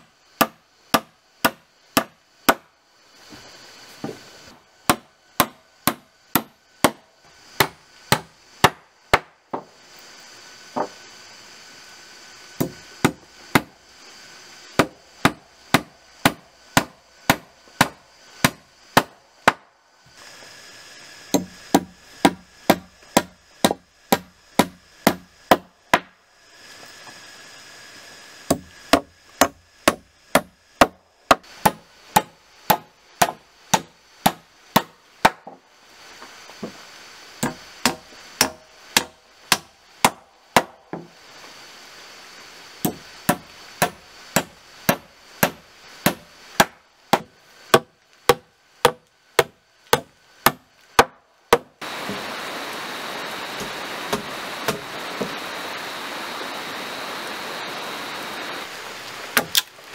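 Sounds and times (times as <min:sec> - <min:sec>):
hammer driving nails into wood: 0:00.4 - 0:02.7.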